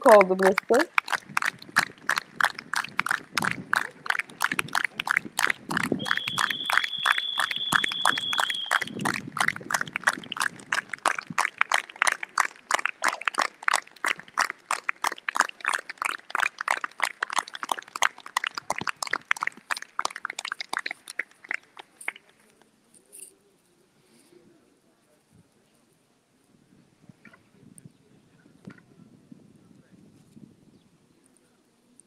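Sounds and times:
people clapping: 0.0 - 22.6.

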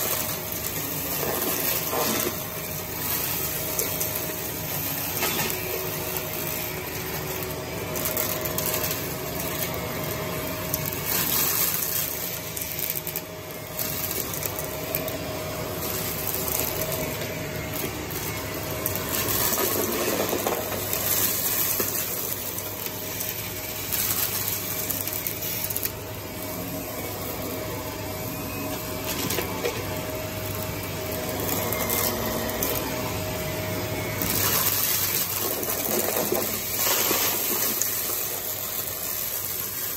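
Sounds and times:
debris rattling in vacuum: 0.0 - 39.9
vacuum cleaner motor whine: 0.0 - 39.9.

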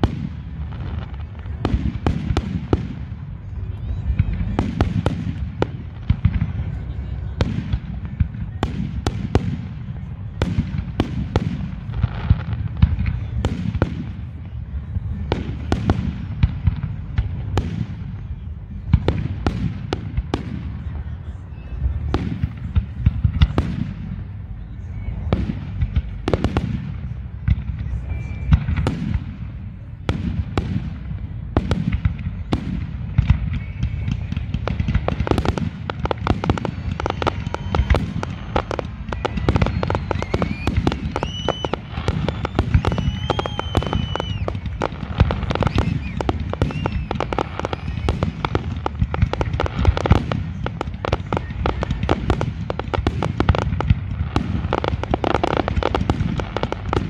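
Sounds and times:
firework crackling: 0.0 - 57.0
firework shells bursting: 38.7 - 48.0.

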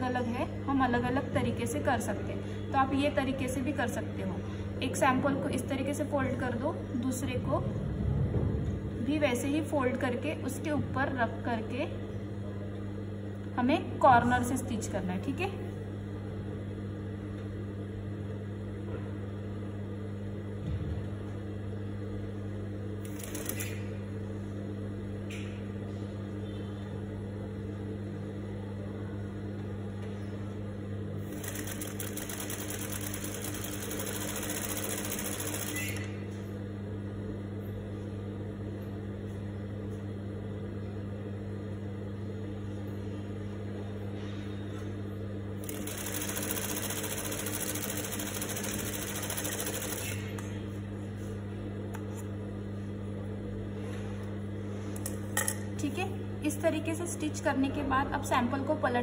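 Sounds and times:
steady low hum: 0.0 - 59.0
sewing machine stitching: 31.3 - 36.0, 45.6 - 50.2.

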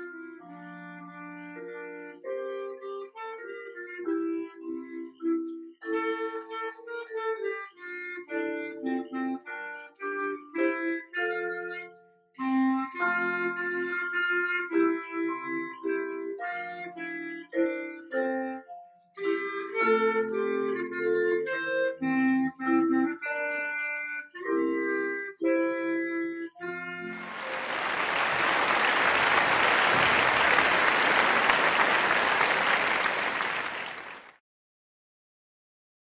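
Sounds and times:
clarinet melody: 0.0 - 34.2
audience applause: 27.2 - 34.4.

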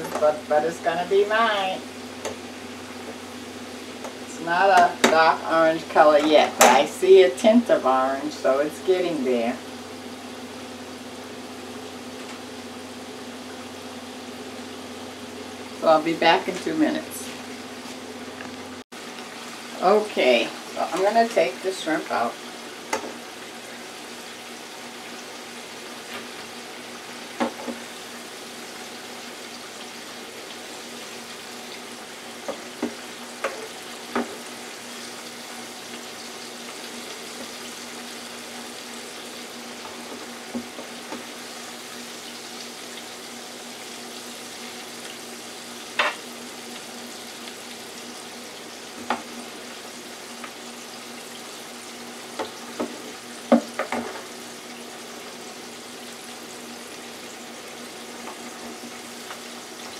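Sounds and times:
shrimp sizzling in hot oil: 0.0 - 59.9.

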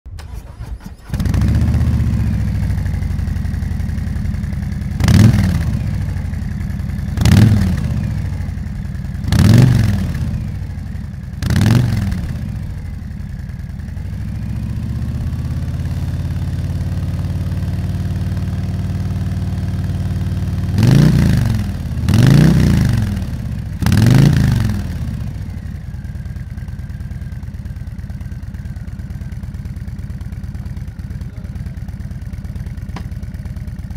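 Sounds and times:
motorcycle engine idling: 1.0 - 33.9
motorcycle throttle blips: 20.8 - 33.9.

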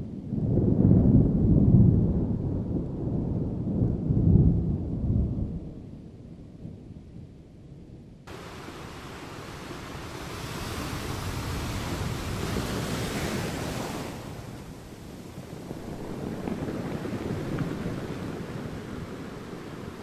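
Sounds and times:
low rumble of thunder: 0.0 - 8.8, 10.2 - 20.0
wind: 0.0 - 20.0
ocean surf hissing: 8.3 - 15.5.

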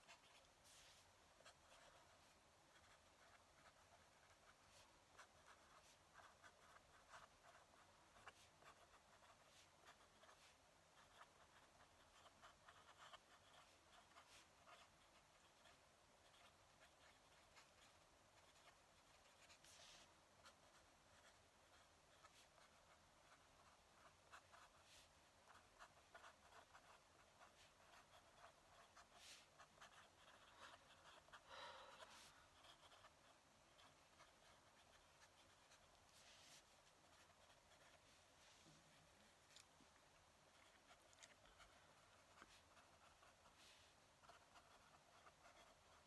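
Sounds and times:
pen nib scratching paper: 0.0 - 46.0.

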